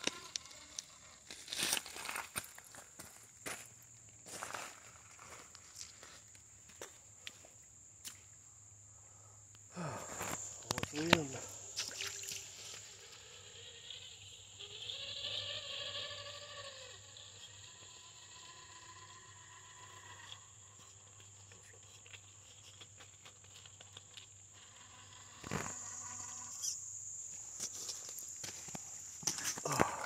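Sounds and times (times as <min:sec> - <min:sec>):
electric motor whining: 0:12.6 - 0:20.6.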